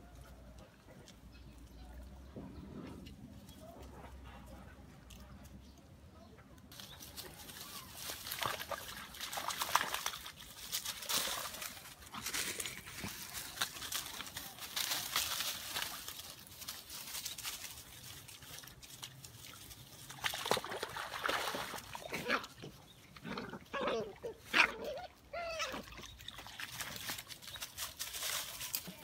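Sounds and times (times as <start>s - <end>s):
puppies rustling through dry leaves: 6.7s - 22.1s, 25.2s - 29.0s
wading in muddy water: 7.1s - 14.4s, 17.7s - 27.8s
puppy whimpers and yelps: 24.6s - 26.0s.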